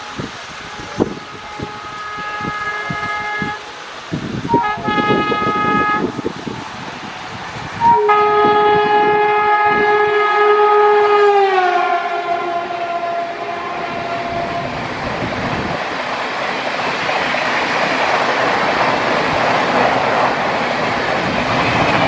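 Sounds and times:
locomotive air horn blast: 0.0s - 6.4s, 7.8s - 14.9s
train coaches rushing past: 0.0s - 22.0s.

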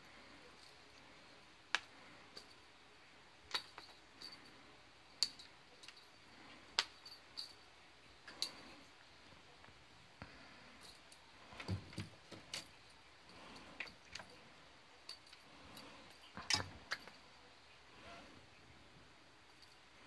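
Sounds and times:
small object clicking and rattling: 3.5s - 4.5s.

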